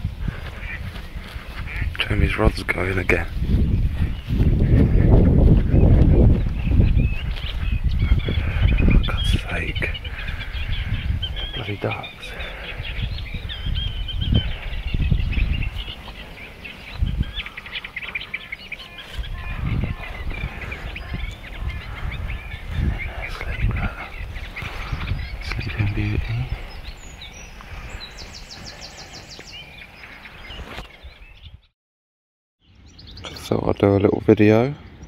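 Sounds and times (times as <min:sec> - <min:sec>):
songbirds chirping: 0:00.0 - 0:31.7, 0:32.6 - 0:35.0
wind on microphone: 0:00.0 - 0:31.7
microphone handling noise: 0:03.0 - 0:11.4, 0:12.9 - 0:16.2.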